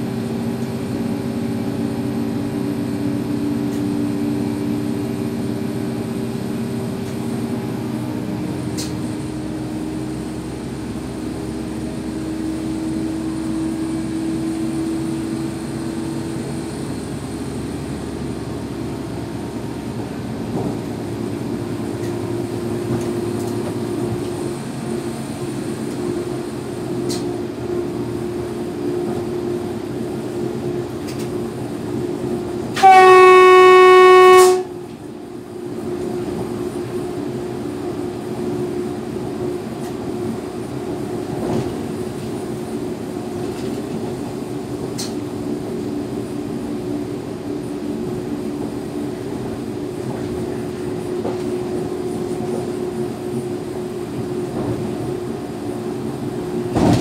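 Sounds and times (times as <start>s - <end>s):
electric train running noise: 0.0s - 57.0s
train horn blast: 32.7s - 34.8s.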